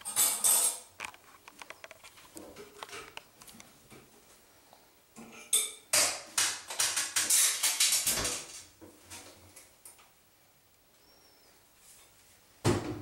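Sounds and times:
metal hardware clattering on counter: 0:00.0 - 0:00.9.

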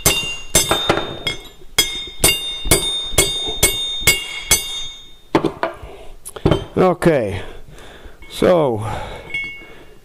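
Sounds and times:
hammer striking metal pin: 0:00.0 - 0:05.8.

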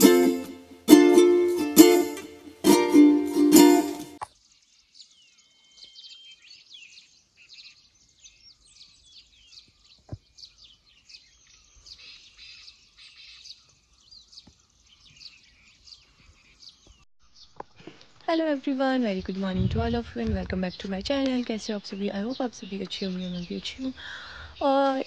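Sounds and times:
dawn chorus of small birds: 0:04.3 - 0:18.1, 0:19.0 - 0:25.0.

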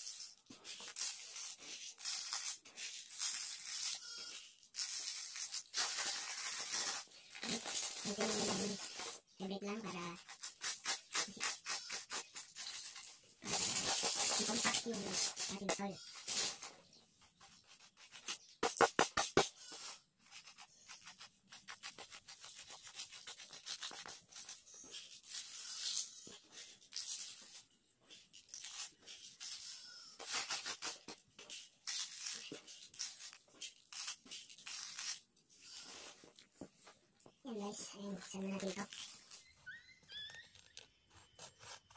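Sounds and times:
soil scraping over plastic tray: 0:10.4 - 0:36.8.

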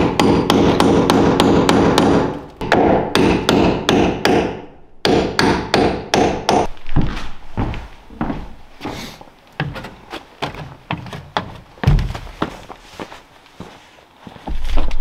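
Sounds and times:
claw hammer striking wood: 0:00.0 - 0:06.7
dull thuds: 0:09.6 - 0:12.8.

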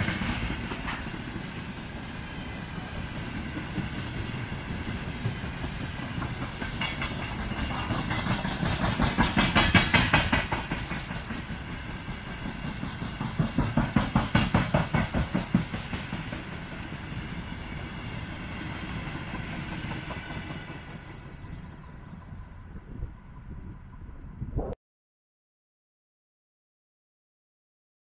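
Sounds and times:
train wheels clacking over rail joints: 0:00.0 - 0:02.0, 0:03.0 - 0:21.6
train rolling rumble: 0:00.0 - 0:24.7.

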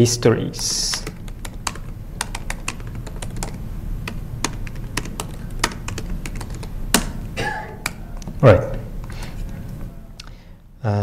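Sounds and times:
low steady hum: 0:00.0 - 0:11.0
keyboard typing clicks: 0:00.8 - 0:08.4.

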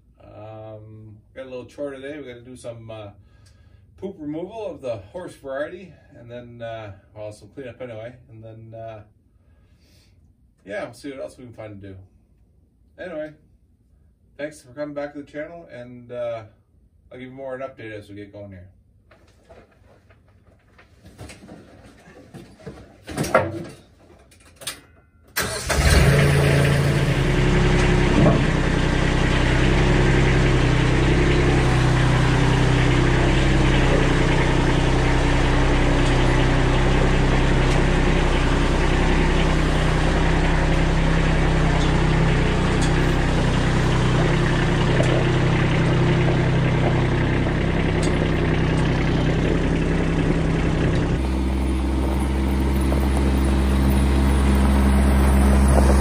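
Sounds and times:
tractor diesel engine running: 0:25.4 - 0:56.0.

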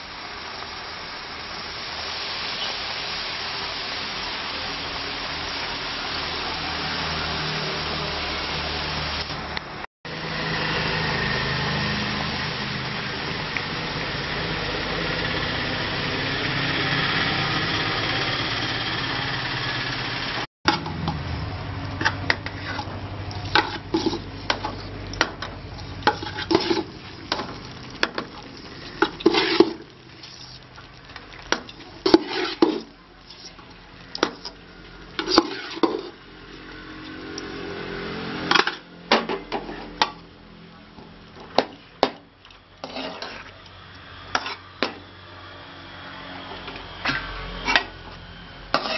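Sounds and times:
chillies sizzling in oil: 0:00.0 - 0:48.9
steel ladle scraping pan: 0:22.0 - 0:40.2, 0:42.8 - 0:45.0, 0:47.0 - 0:48.0, 0:48.7 - 0:48.9.

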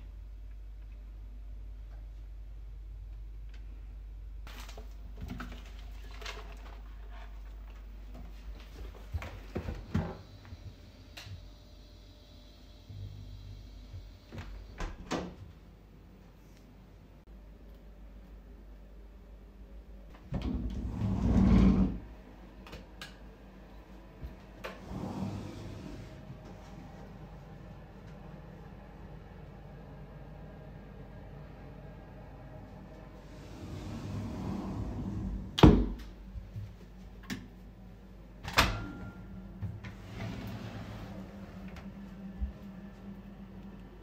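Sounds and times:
door scraping rumble: 0:20.3 - 0:22.1, 0:24.8 - 0:26.6, 0:33.2 - 0:35.7, 0:39.8 - 0:42.0.

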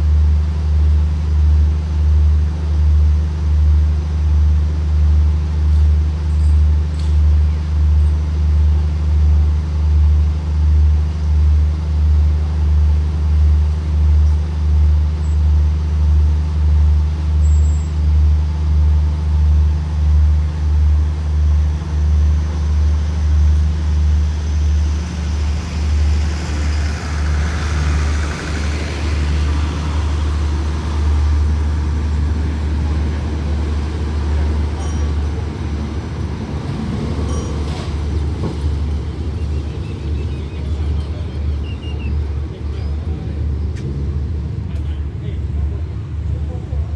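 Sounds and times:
diesel train engine throbbing: 0:00.0 - 0:46.9.

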